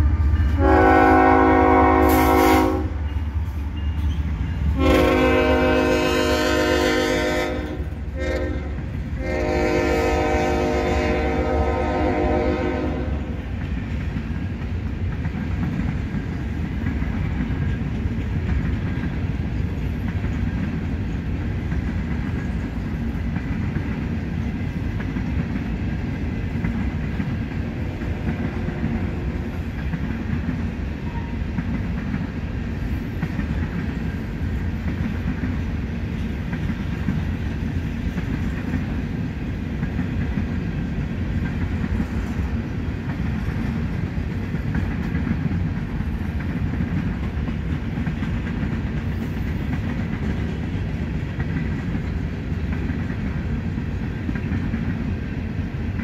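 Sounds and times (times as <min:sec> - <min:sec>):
locomotive air horn: 0:00.0 - 0:03.0, 0:04.7 - 0:13.4, 0:27.8 - 0:29.6
freight train rumbling on rails: 0:00.0 - 0:56.0.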